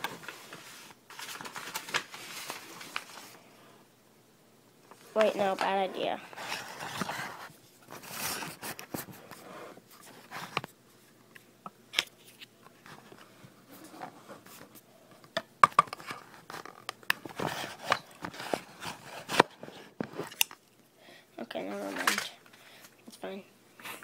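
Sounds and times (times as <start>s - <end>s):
paper rustling: 0.0s - 3.4s, 5.0s - 10.7s.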